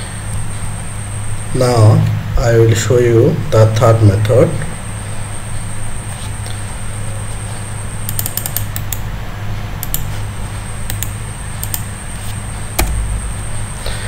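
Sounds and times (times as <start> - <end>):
faint high whine: 0.0 - 9.0, 9.8 - 14.0
steady low hum: 0.0 - 14.0
computer mouse clicks: 8.1 - 9.0, 9.8 - 10.1, 10.9 - 11.9
keypresses: 8.1 - 9.0, 9.8 - 10.1, 10.9 - 11.9.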